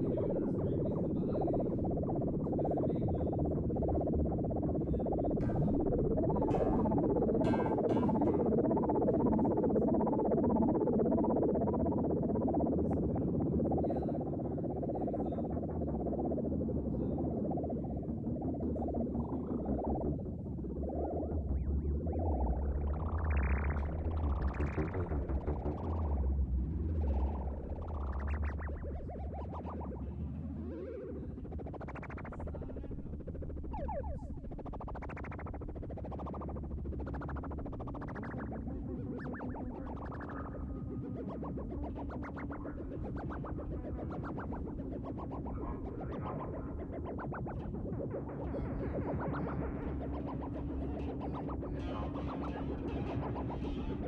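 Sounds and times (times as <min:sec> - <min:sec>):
synthesizer music: 0:15.5 - 0:54.0.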